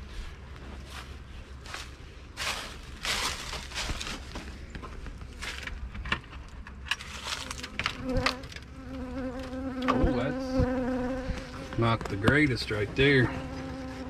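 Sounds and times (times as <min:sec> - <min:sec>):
footsteps: 0:00.0 - 0:06.4, 0:11.2 - 0:14.0
rustling: 0:00.1 - 0:08.3
honeybees humming: 0:07.2 - 0:14.0.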